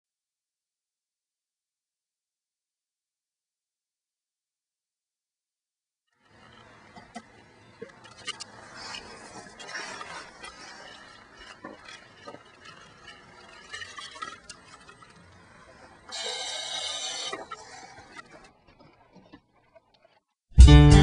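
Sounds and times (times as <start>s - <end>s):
rustling: 6.2s - 16.2s.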